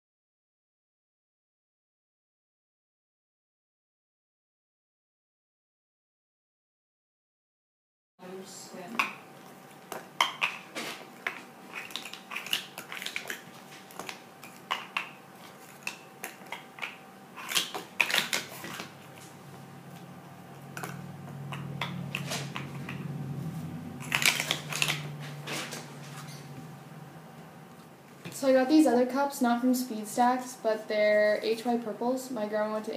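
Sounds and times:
plastic cups clacking: 9.9 - 19.3, 20.6 - 23.0, 24.0 - 26.3.

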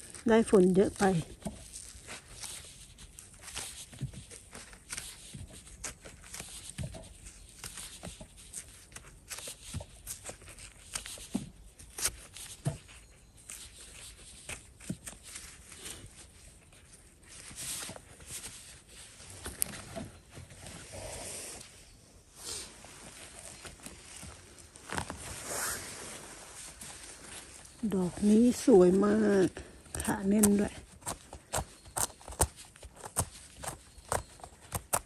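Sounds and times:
twigs crackling and snapping: 0.0 - 20.0, 26.6 - 35.0
footsteps rustling through undergrowth: 13.7 - 33.2.

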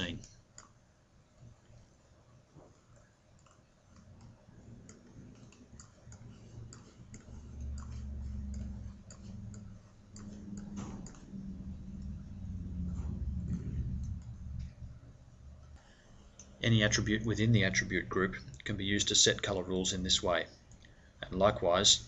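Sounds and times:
low hum: 2.7 - 22.0
mouse scroll wheel clicking: 2.8 - 14.8.

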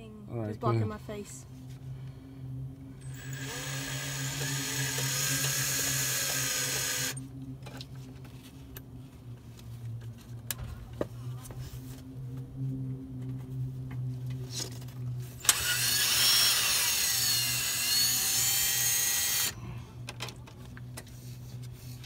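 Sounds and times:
steady low hum: 0.0 - 22.0
power driver whirring: 3.0 - 7.2, 15.4 - 19.6.

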